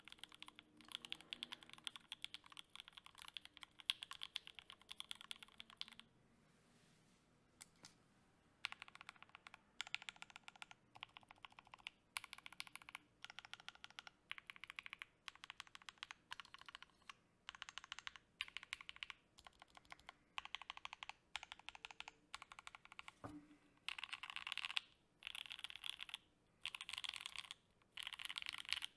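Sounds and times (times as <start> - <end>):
mechanical keyboard keys clicking: 0.0 - 6.0.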